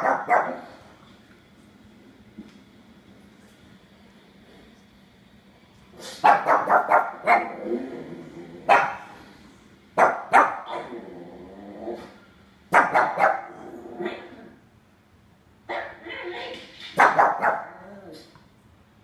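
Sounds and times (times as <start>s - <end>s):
puppy barking: 0.0s - 0.7s, 6.2s - 7.6s, 8.7s - 9.1s, 10.0s - 10.9s, 12.7s - 14.4s, 15.7s - 17.9s.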